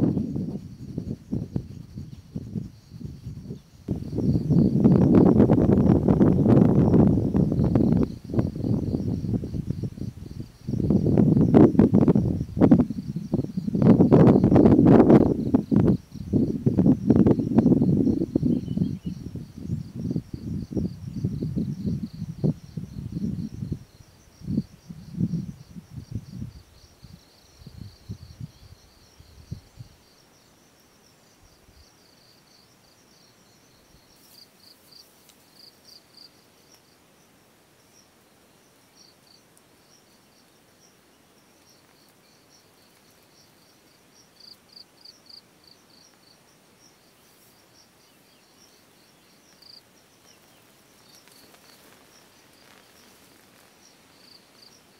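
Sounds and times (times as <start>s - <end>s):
wind rumbling on microphone: 0.0s - 30.2s, 48.0s - 54.9s
insects chirping: 0.0s - 54.9s.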